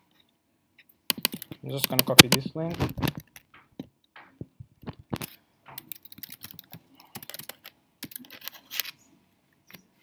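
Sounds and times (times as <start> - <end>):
keyboard key clicks: 1.1 - 2.4.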